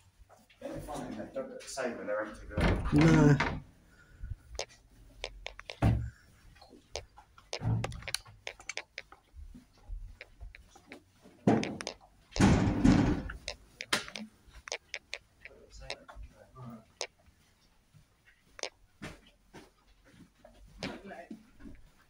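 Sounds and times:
clicks and knocks of handling things: 6.9s - 9.3s, 10.2s - 16.0s.

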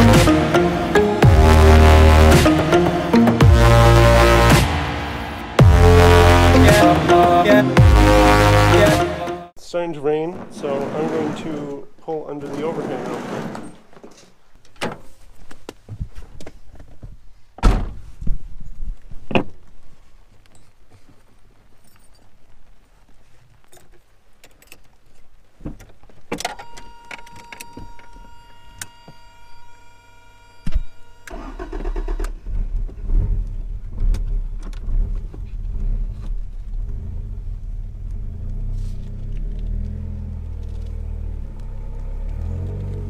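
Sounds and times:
steady high whine: 0.0s - 9.3s, 26.8s - 31.7s
car engine starting and running: 0.0s - 9.4s, 31.2s - 43.0s.

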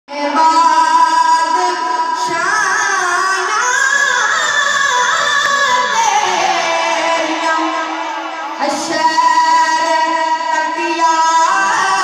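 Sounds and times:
man singing into microphone: 8.6s - 12.0s.

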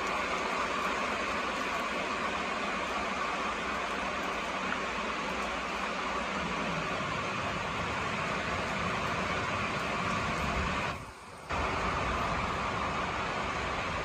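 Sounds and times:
steady rainfall: 0.0s - 14.0s.

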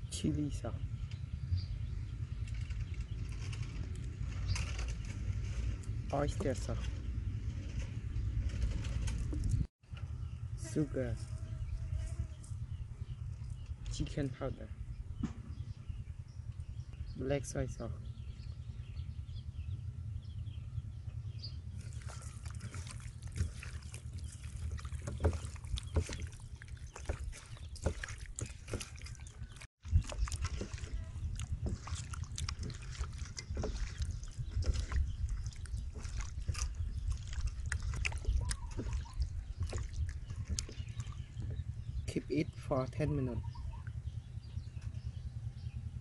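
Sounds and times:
steady low rumble: 0.0s - 46.0s
hands squelching raw chicken: 21.8s - 41.5s.

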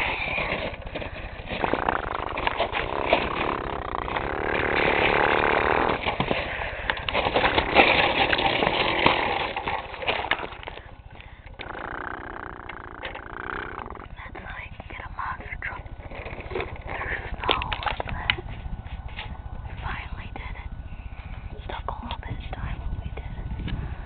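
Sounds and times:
clicks and crunches in snow: 0.0s - 10.8s.

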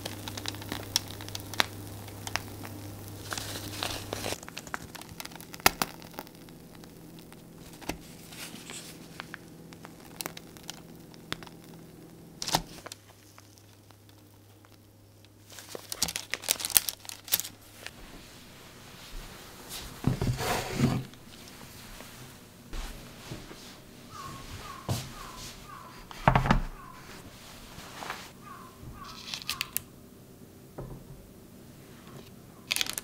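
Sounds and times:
plastic piping bag crinkling: 0.0s - 19.0s, 29.0s - 29.8s, 32.6s - 33.0s.

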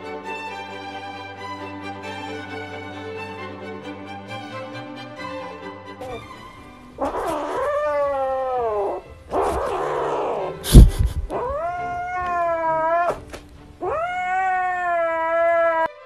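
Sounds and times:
kitten meowing: 7.0s - 15.9s
loud thump: 10.7s - 11.3s.

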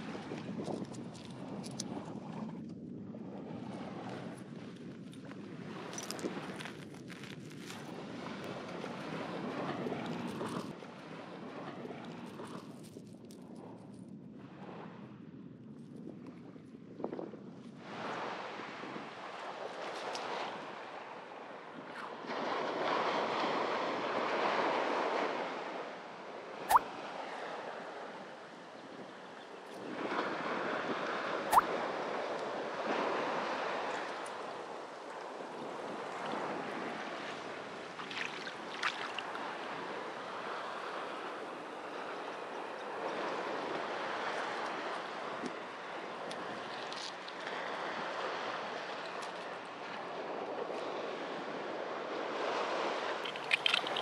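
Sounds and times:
small waves lapping on shore: 3.2s - 13.7s, 17.7s - 54.0s
surf washing on beach: 17.8s - 54.0s.

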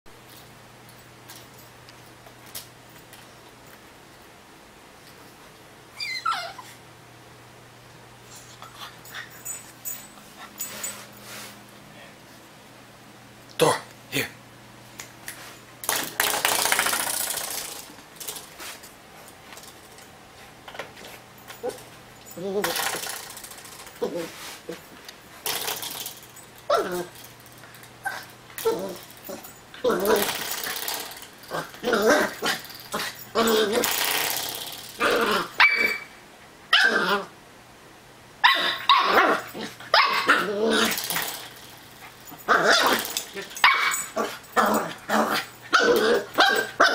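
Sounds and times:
puppy barking and growling: 21.6s - 24.8s, 26.7s - 27.2s, 28.0s - 37.4s, 38.4s - 46.9s.

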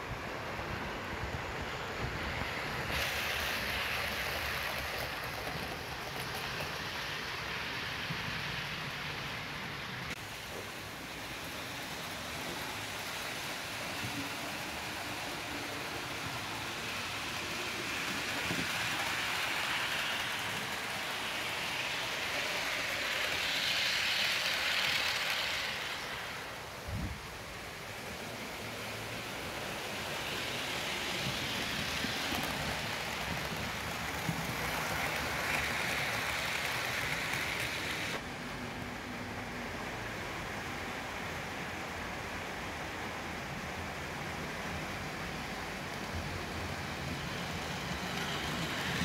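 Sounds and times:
model train rolling hiss: 0.0s - 49.0s.

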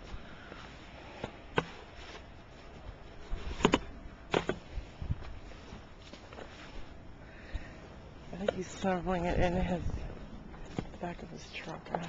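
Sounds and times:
sharp knocks and crunches: 1.1s - 6.8s.

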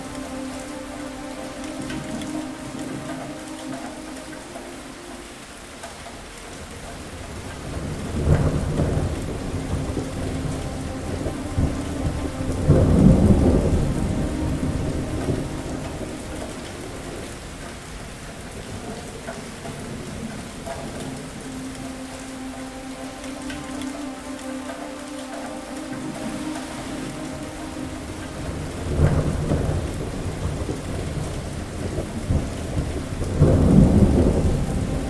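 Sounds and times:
heavy rain: 0.0s - 35.0s
thunder rolling: 7.6s - 17.6s, 27.0s - 35.0s.

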